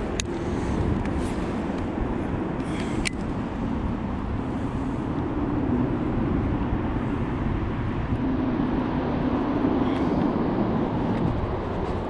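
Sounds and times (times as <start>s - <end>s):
distant motor rumble: 0.0s - 12.0s.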